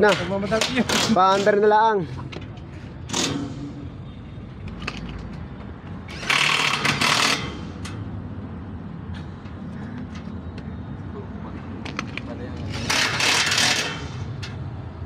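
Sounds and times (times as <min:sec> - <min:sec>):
cordless drill driving screw into metal: 0:06.1 - 0:07.9, 0:12.7 - 0:14.2.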